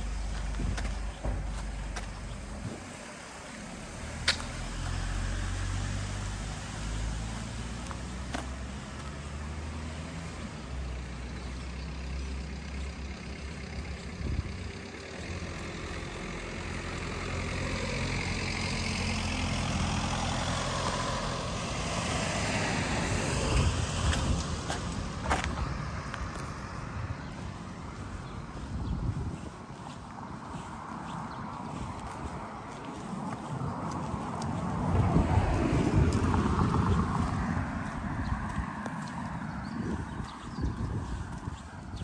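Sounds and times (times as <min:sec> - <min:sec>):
vehicle engine rumbling: 0:00.0 - 0:42.0.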